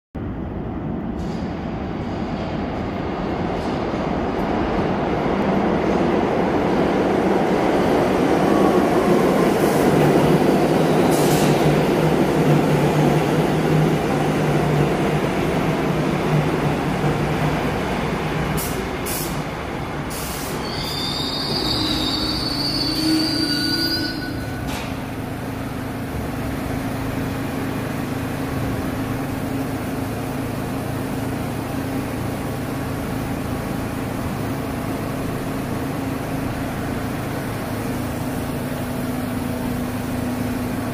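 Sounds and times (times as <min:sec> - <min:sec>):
steel wheels rumbling on rail: 0:00.2 - 0:40.9
standing train humming: 0:01.8 - 0:40.9
high squeal of wheels and brakes: 0:20.2 - 0:25.0.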